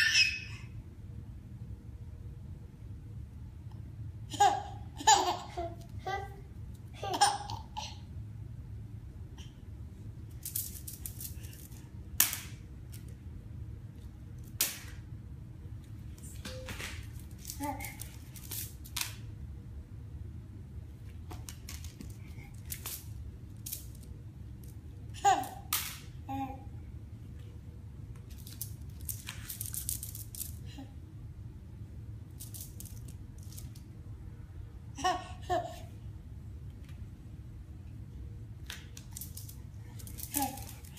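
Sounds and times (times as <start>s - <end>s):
toy rustling and rattling: 10.3s - 12.0s, 16.2s - 19.0s, 21.4s - 25.6s, 28.3s - 30.7s, 32.3s - 33.9s, 38.9s - 40.9s.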